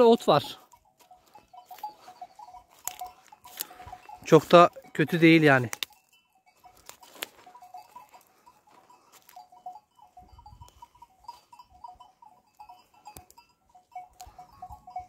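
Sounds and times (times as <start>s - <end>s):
sheep grazing: 0.0s - 15.0s.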